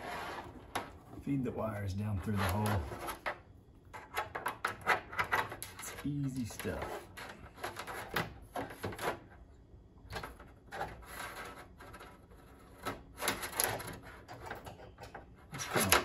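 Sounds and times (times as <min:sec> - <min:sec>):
wire bundle being fed through hole: 0:02.1 - 0:03.3, 0:10.1 - 0:16.0.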